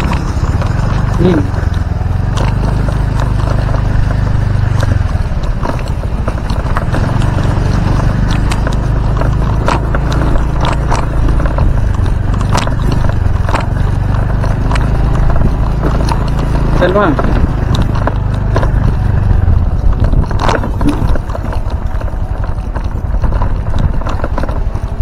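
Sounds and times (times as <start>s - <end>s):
motorcycle engine running: 0.0s - 25.0s
motorcycle knocking and rattling: 0.0s - 25.0s.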